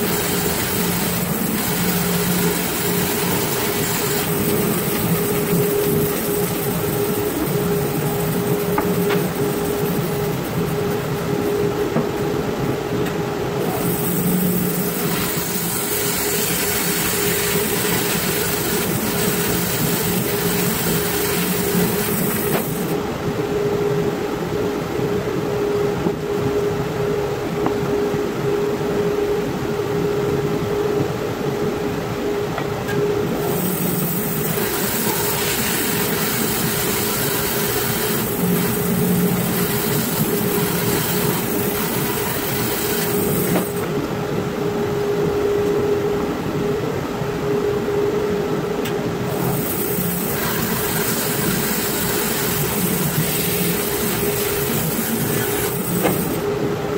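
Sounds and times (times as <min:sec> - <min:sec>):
saw blade cutting wood: 0:00.0 - 0:10.9, 0:13.7 - 0:23.0, 0:33.4 - 0:43.8, 0:49.4 - 0:56.4
bandsaw humming: 0:00.0 - 0:12.1, 0:13.6 - 0:23.0, 0:33.3 - 0:43.9, 0:49.3 - 0:56.4.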